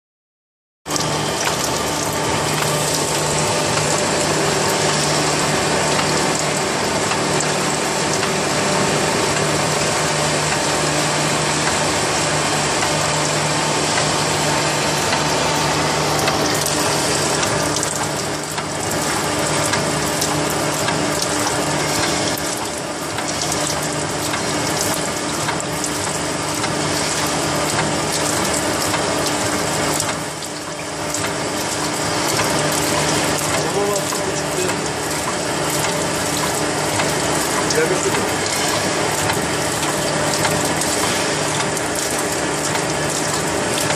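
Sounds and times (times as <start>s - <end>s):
machine hum: 0.9s - 43.9s.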